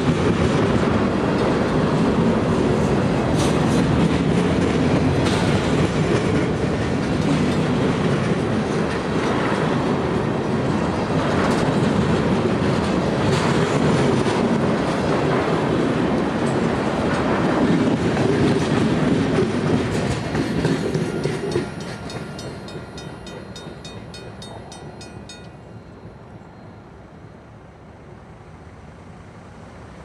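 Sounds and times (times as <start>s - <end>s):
train wheels clattering on rails: 0.0s - 27.0s
crossing bell ringing: 20.0s - 27.6s.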